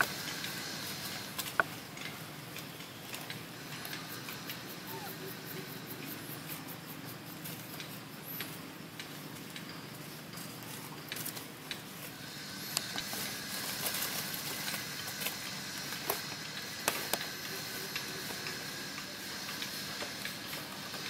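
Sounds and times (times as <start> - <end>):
steady outdoor hiss: 0.0 - 21.0
dry leaves crackling: 9.0 - 21.0.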